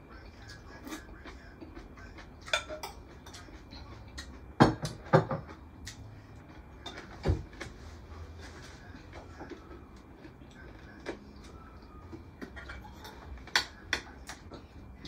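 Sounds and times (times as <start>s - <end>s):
forks clinking against plates: 2.1s - 3.6s, 12.5s - 14.4s.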